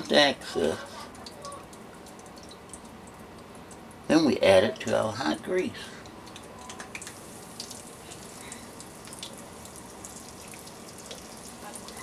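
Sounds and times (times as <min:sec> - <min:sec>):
steak sizzling in hot oil: 0:07.0 - 0:12.0.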